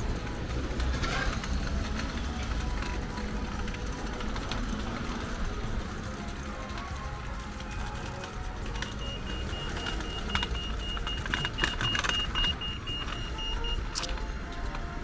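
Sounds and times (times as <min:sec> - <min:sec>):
road traffic rumble: 0:00.0 - 0:15.0
crossing signal beeping: 0:07.6 - 0:14.4.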